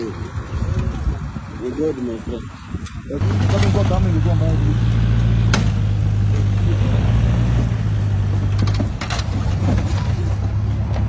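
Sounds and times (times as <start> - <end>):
truck engine humming: 2.7 - 11.0.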